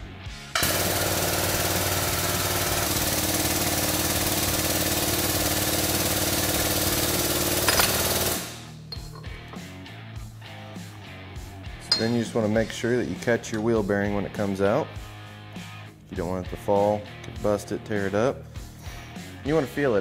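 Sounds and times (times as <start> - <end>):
hydraulic pump running: 0.6 - 9.6.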